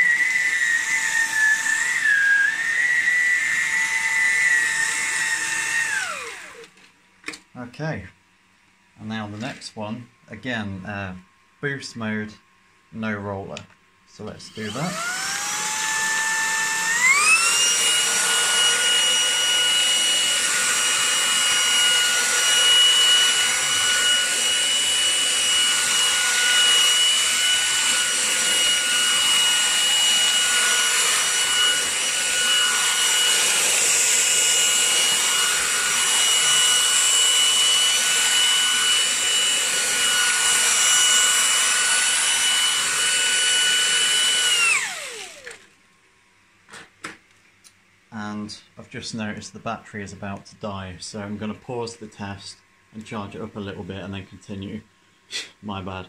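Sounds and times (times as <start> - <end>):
stick vacuum motor whine: 0.0 - 7.4, 14.2 - 45.8.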